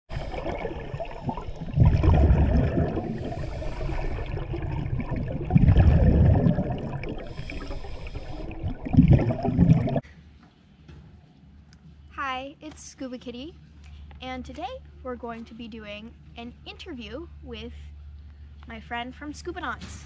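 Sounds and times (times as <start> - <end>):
exhaled bubbles rumbling underwater: 0.1 - 10.0
regulator inhalation hiss: 3.1 - 4.4, 7.2 - 8.7.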